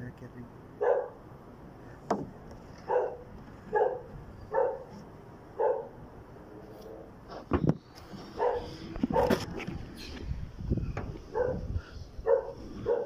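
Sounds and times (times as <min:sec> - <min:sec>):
dog barking: 0:00.8 - 0:01.2, 0:02.9 - 0:04.9, 0:05.6 - 0:06.0, 0:08.4 - 0:09.4, 0:11.3 - 0:13.0.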